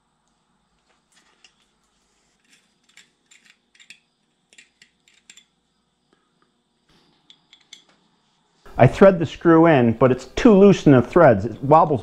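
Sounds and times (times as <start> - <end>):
metal clicking and scraping of hand tap: 2.8 - 5.5, 7.2 - 8.0.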